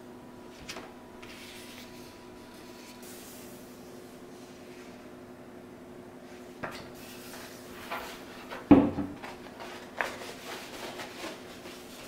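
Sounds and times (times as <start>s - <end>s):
faint steady hum: 0.0s - 12.0s
paper poster rustling: 0.5s - 3.4s, 7.0s - 12.0s.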